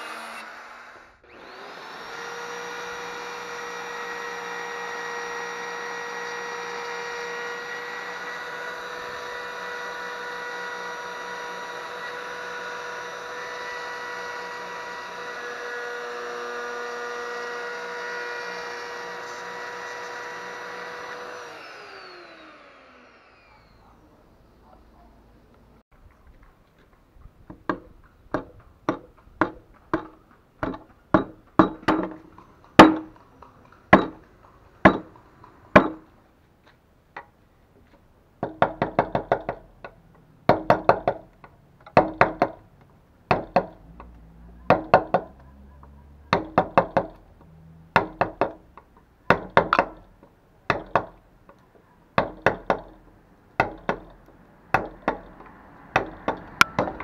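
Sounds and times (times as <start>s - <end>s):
mallet striking chisel into wood: 27.5s - 33.2s, 33.9s - 35.2s, 35.8s - 36.1s, 38.4s - 41.3s, 41.9s - 42.6s, 43.3s - 43.8s, 46.3s - 47.2s, 47.9s - 48.6s, 49.3s - 50.0s, 50.7s - 51.2s, 52.2s - 53.0s, 53.6s - 54.1s, 54.7s - 55.3s, 55.9s - 57.0s.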